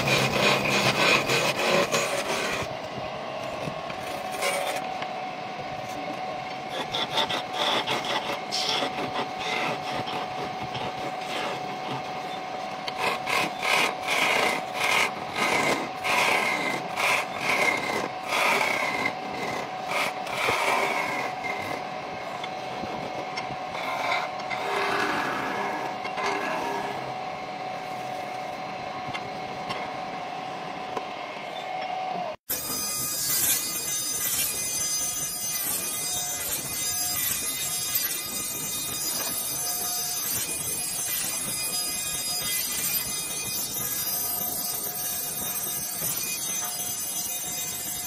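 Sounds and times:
chisel scraping wood on lathe: 0.0s - 2.7s, 6.7s - 12.0s, 12.9s - 21.8s, 23.7s - 27.0s
lathe whine: 0.0s - 48.0s.

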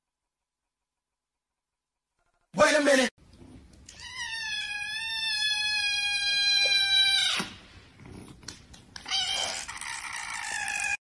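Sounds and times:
kitten meowing: 3.9s - 7.5s, 9.0s - 11.0s.

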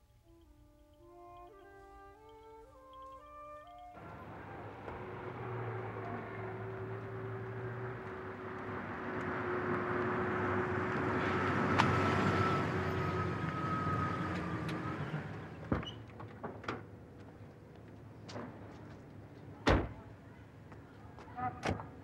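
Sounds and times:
car driving past on wet pavement: 4.0s - 15.6s.

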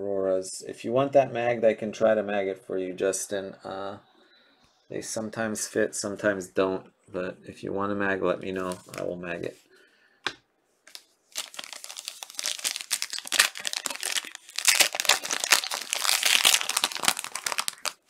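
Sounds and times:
plastic card sleeves crinkling: 8.6s - 9.2s, 10.8s - 18.0s.

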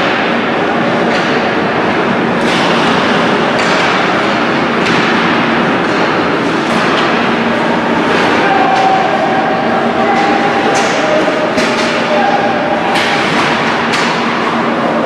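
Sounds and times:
arena noise: 0.0s - 15.0s
sharp knocks of hockey sticks: 2.4s - 4.2s, 4.8s - 7.2s, 10.1s - 12.3s, 12.9s - 14.4s.

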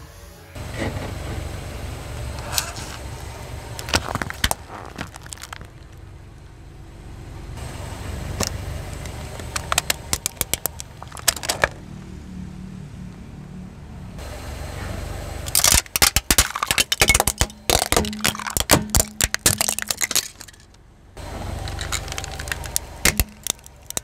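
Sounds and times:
car engine low rumble: 0.3s - 24.0s
tyre rolling on asphalt: 2.3s - 6.3s, 8.2s - 11.8s, 21.4s - 24.0s
hard plastic cracking: 3.8s - 6.0s, 8.4s - 11.8s, 15.5s - 20.8s, 21.6s - 24.0s.

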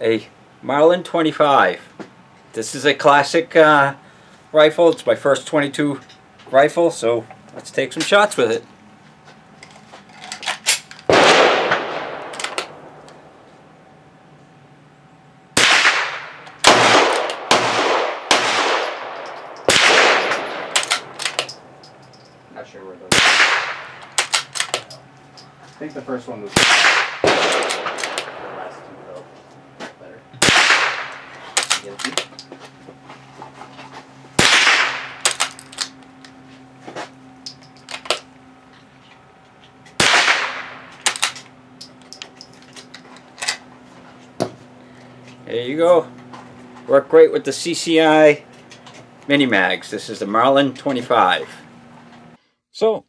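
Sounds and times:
gunshots echoing: 11.1s - 13.1s, 15.6s - 21.3s, 23.1s - 24.5s, 26.6s - 29.1s, 30.4s - 31.8s, 34.4s - 35.4s, 40.0s - 41.2s
rifle bolt clicks: 20.7s - 21.6s.

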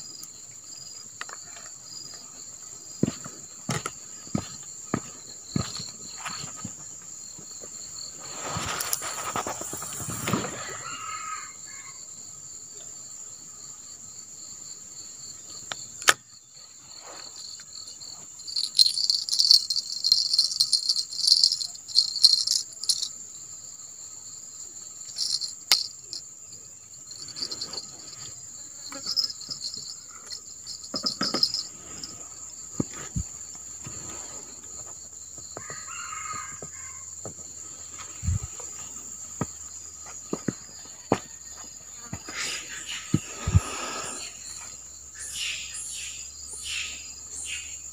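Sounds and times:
insects chirring: 0.0s - 47.9s
fishing-rod bell jingling: 18.5s - 23.1s, 25.1s - 26.2s, 27.2s - 28.2s, 29.0s - 31.7s
handling rustles and knocks: 18.5s - 23.1s, 25.2s - 26.2s, 29.0s - 32.2s.

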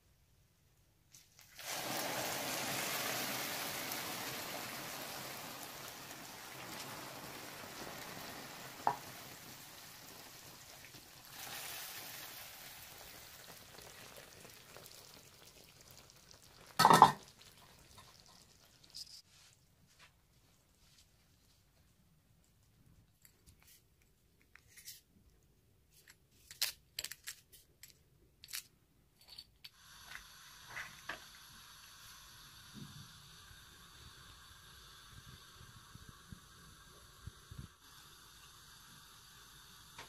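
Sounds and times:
syrup sizzling on pastry: 1.2s - 19.5s, 29.7s - 40.0s.

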